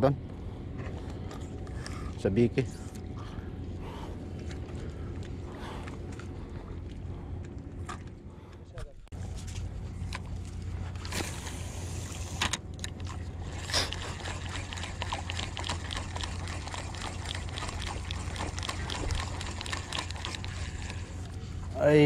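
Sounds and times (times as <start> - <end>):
water lapping at shore: 11.2 - 22.0
small clicks and ticks: 14.7 - 21.3.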